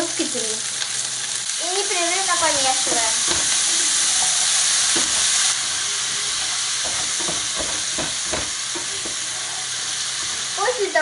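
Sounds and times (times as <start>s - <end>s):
vegetables sizzling in oil: 0.0s - 11.0s
spatula scraping a pan: 2.4s - 10.6s.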